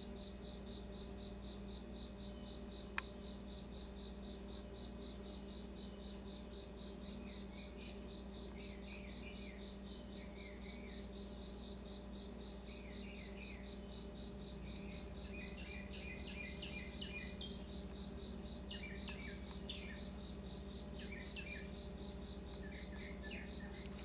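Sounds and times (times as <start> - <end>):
cricket-like chirp: 0.0 - 24.0
insects trilling: 0.0 - 24.0
low steady hum: 0.0 - 24.0
bird chirping: 14.7 - 17.7, 18.6 - 20.1, 21.0 - 21.8, 22.5 - 24.0.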